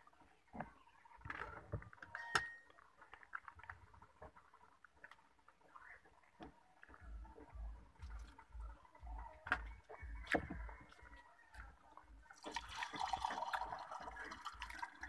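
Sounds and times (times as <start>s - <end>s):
chewing: 2.6s - 12.8s.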